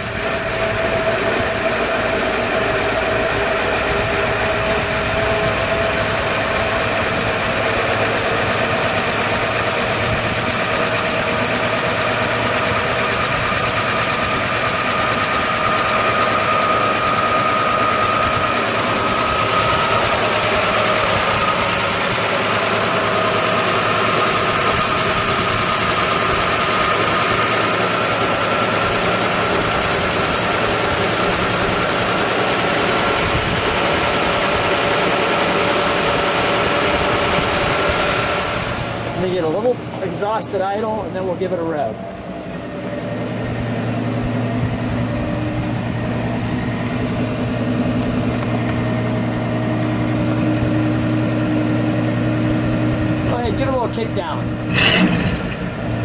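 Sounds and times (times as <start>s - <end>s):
car engine idling: 0.0s - 56.0s
thin whine: 53.2s - 56.0s.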